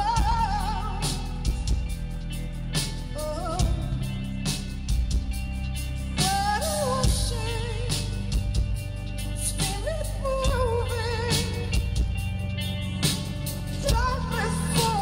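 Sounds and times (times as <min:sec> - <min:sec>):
woman singing with vibrato: 0:00.0 - 0:01.9, 0:03.0 - 0:04.4, 0:06.2 - 0:08.6, 0:09.4 - 0:12.2, 0:13.7 - 0:15.0
rock band playing slow song: 0:00.0 - 0:15.0.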